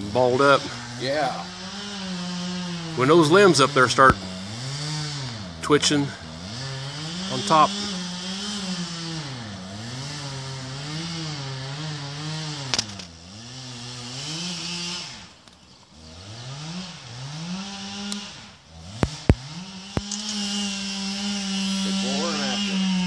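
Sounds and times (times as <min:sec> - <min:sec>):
chainsaw cutting wood: 0:00.0 - 0:23.0
sharp clicks: 0:19.0 - 0:20.4.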